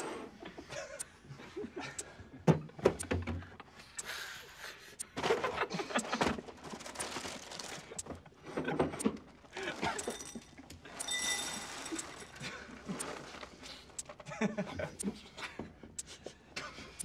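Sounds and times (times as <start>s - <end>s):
stifled laughter: 5.3s - 6.4s, 14.2s - 17.0s.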